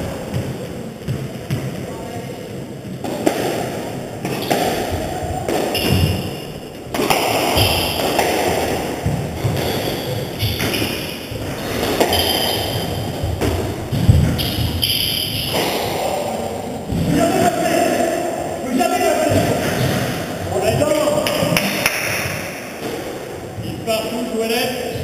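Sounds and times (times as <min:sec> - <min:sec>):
squash ball struck by rackets: 0:03.0 - 0:15.9.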